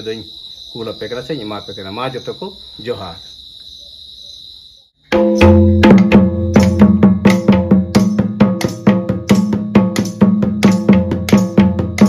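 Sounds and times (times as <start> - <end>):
insects chirring: 0.0 - 12.0
hand drum rhythm: 5.1 - 12.0.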